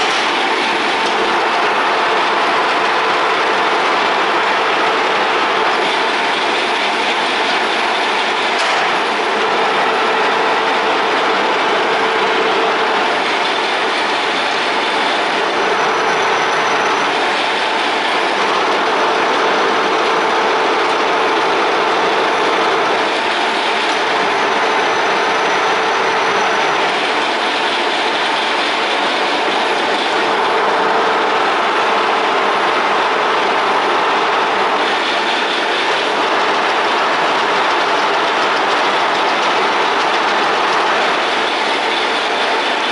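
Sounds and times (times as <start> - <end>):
machine mechanical whir: 0.0 - 42.9.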